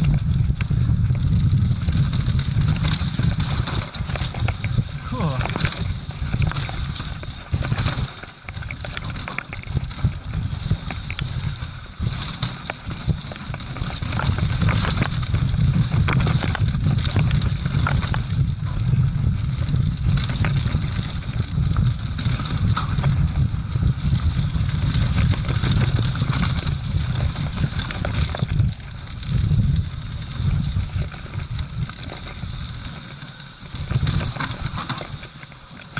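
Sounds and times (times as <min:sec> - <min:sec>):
wind buffeting microphone: 0:00.0 - 0:35.3
bike clicks and rattles: 0:00.0 - 0:35.9
tyres on dirt and leaves: 0:02.7 - 0:10.1.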